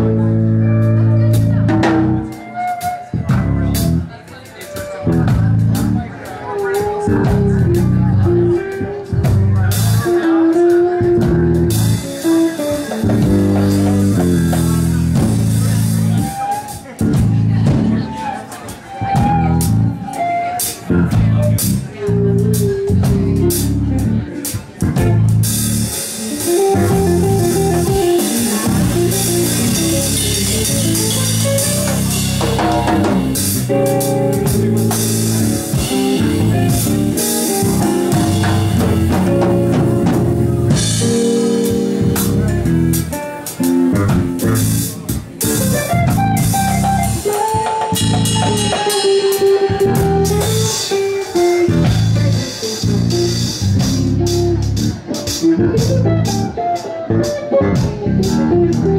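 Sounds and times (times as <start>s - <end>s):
bass guitar: 0.0s - 58.9s
drums played with sticks: 0.0s - 58.9s
cymbals: 44.6s - 54.1s.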